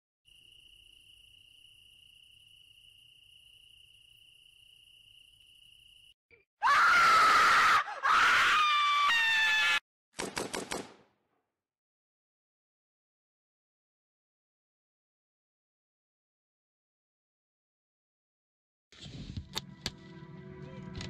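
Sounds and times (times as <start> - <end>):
insect trill: 0.3 - 6.2
person screaming: 6.6 - 9.8.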